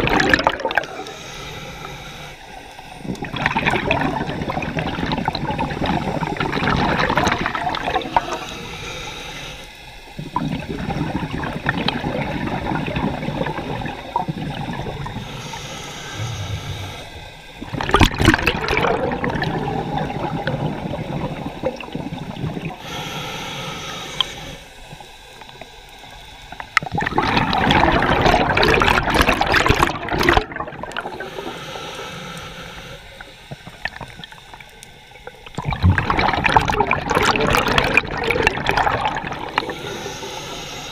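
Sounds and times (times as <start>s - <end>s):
gurgling exhaled bubbles: 0.0s - 1.3s, 2.5s - 8.7s, 10.2s - 23.1s, 26.5s - 31.6s, 33.2s - 40.9s
regulator hissing inhale: 0.9s - 3.2s, 7.0s - 10.2s, 12.3s - 17.7s, 22.2s - 26.7s, 31.0s - 35.5s, 39.1s - 40.9s.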